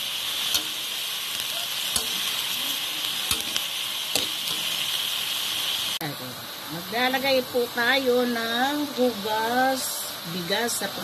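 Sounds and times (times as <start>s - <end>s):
seafood sizzling in a wok: 0.0s - 11.0s
spatula knocking against pan: 3.3s - 4.8s.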